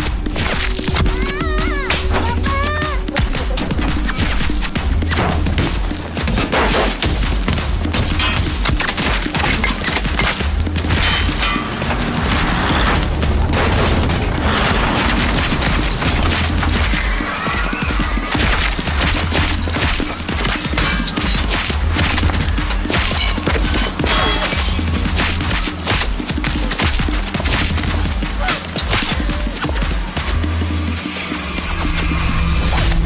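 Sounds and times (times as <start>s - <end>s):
low pulsing music: 0.0s - 33.0s
rapid gunfire: 5.4s - 30.1s.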